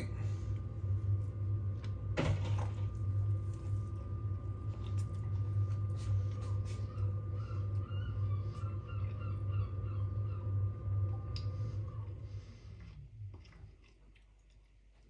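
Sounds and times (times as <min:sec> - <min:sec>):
steady low hum: 0:00.0 - 0:15.0
person chewing: 0:12.4 - 0:15.0.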